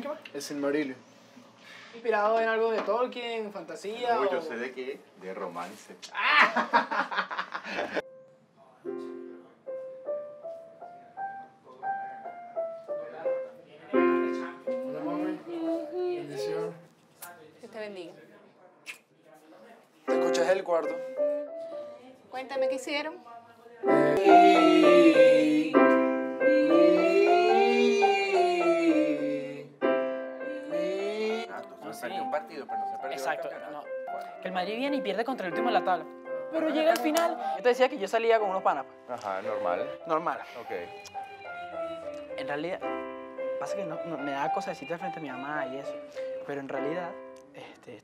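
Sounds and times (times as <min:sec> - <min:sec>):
men laughing: 0:06.1 - 0:08.0
piano notes: 0:07.9 - 0:16.8, 0:20.1 - 0:23.1, 0:23.8 - 0:47.7.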